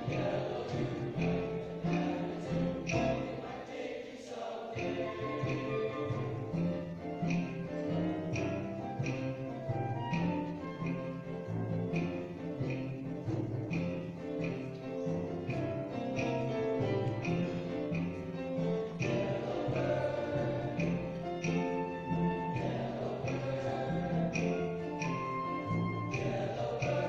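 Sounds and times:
instrumental accompaniment: 0.0s - 3.6s, 4.8s - 27.0s
men's chorus singing: 0.0s - 7.4s, 18.8s - 27.0s.

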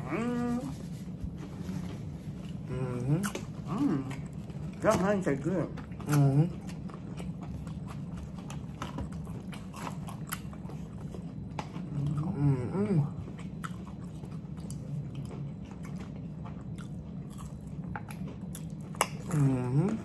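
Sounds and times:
chewing and crunching fried food: 0.3s - 20.0s
person humming: 2.7s - 4.1s.

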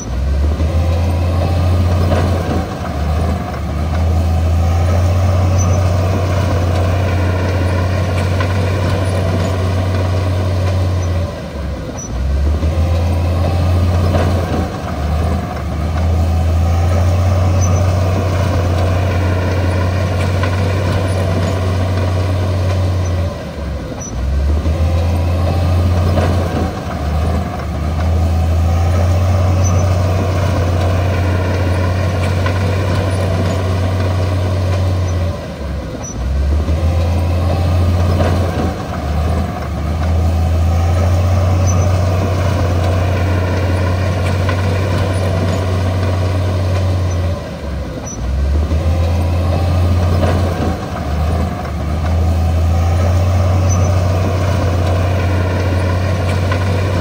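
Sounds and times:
bulldozer diesel engine droning: 0.0s - 57.0s.

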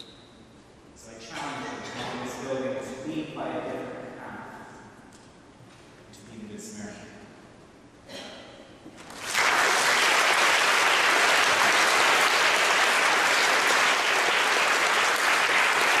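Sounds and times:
audience applauding: 9.0s - 16.0s.

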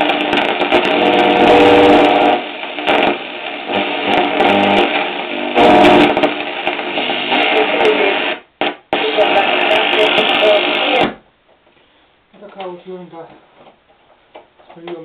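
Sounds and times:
muffled radio music: 0.0s - 11.2s.

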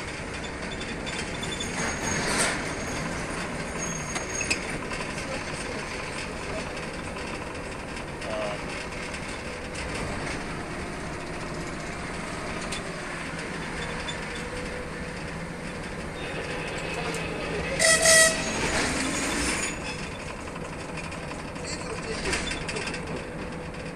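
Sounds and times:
locomotive engine and rolling noise: 0.0s - 23.9s
locomotive horn toots: 16.1s - 19.2s.

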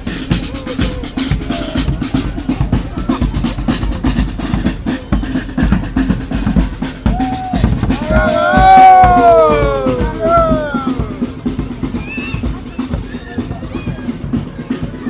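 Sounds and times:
snare and bass drums beating: 0.0s - 15.0s
loud pitched call: 7.2s - 11.3s.

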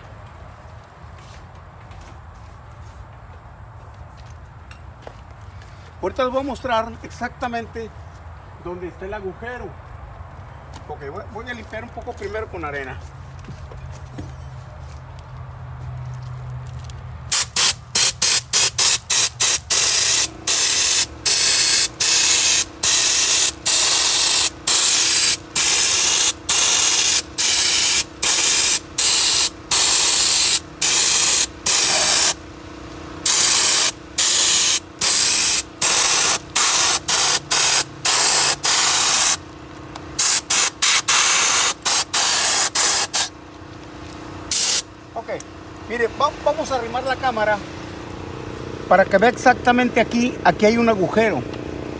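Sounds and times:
sandblasting gun hissing blasts: 17.3s - 32.4s, 33.2s - 39.4s, 40.2s - 43.4s, 44.5s - 44.9s.

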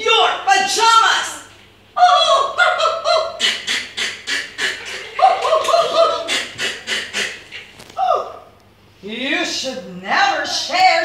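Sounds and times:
children laughing: 2.0s - 7.8s.

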